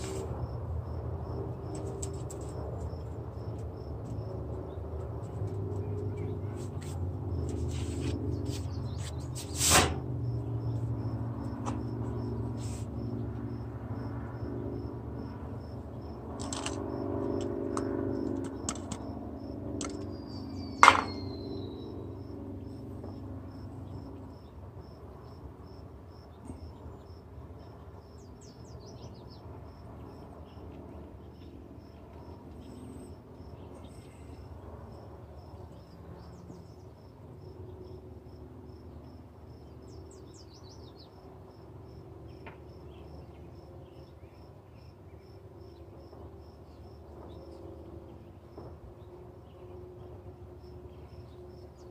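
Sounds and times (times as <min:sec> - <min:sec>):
cricket chirping: 0:00.0 - 0:04.8, 0:10.0 - 0:48.6, 0:49.4 - 0:51.9
knocks on metal table: 0:20.8 - 0:21.3.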